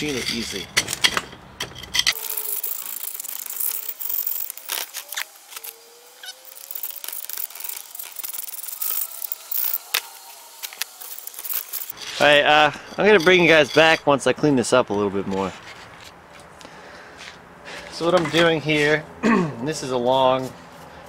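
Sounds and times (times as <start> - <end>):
sand crumbling and grating: 2.1 - 13.5.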